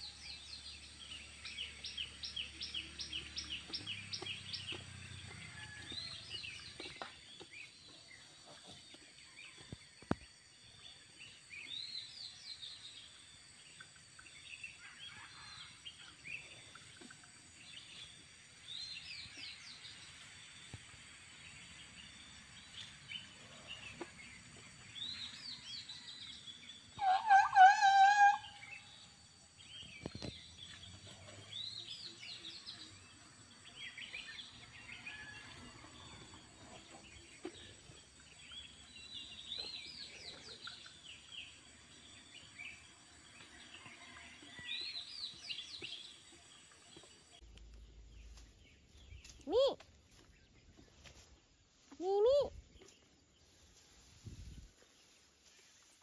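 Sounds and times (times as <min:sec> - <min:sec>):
birds chirping: 0:44.0 - 0:56.0.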